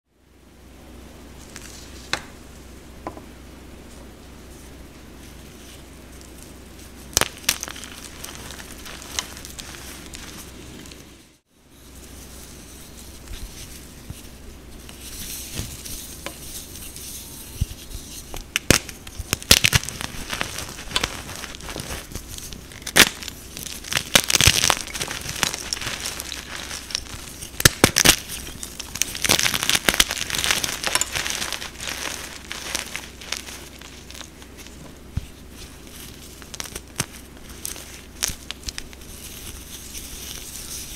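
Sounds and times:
chalk crunching by hand: 0:11.8 - 0:40.9.

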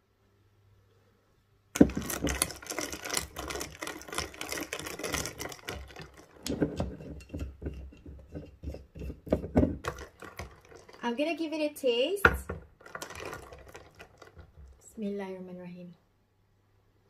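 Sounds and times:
ice cubes clinking in glass: 0:01.8 - 0:11.1, 0:12.4 - 0:14.8.

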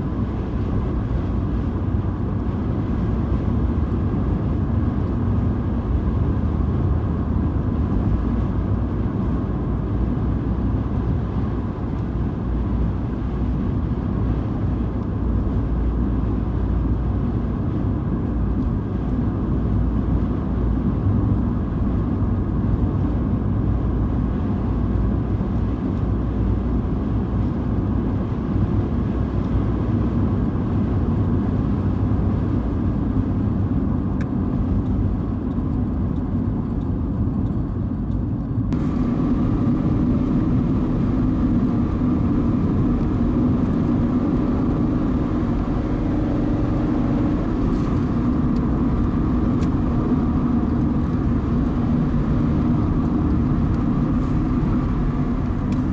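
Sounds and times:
car driving tyre and engine noise: 0:00.0 - 0:55.9
hum: 0:38.7 - 0:55.9.

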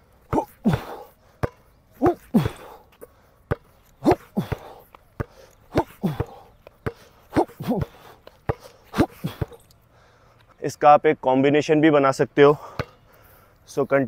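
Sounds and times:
player grunting: 0:00.3 - 0:01.1, 0:02.0 - 0:02.8, 0:04.0 - 0:04.8, 0:05.7 - 0:06.4, 0:07.3 - 0:08.2, 0:08.9 - 0:09.6
basketball bouncing on concrete: 0:00.3 - 0:02.8, 0:03.5 - 0:08.7, 0:12.7 - 0:13.0.

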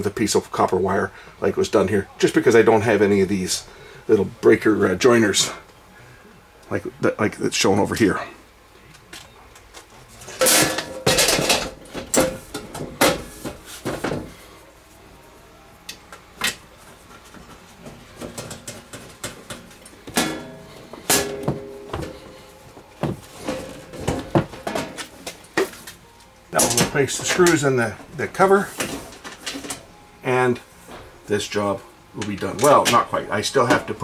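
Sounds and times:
sheet metal clanks and knocks: 0:10.4 - 0:13.3, 0:18.3 - 0:22.2.

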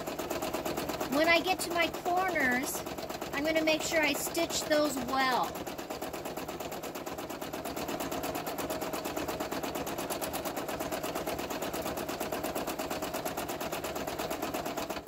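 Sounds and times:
sewing machine stitching: 0:00.0 - 0:15.0.

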